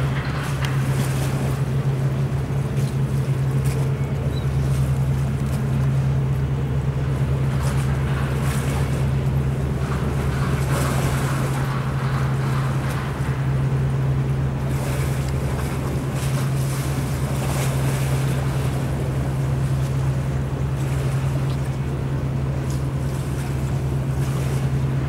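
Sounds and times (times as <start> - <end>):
low engine hum: 0.0 - 25.0
water noise: 0.0 - 25.0
wind: 0.0 - 25.0.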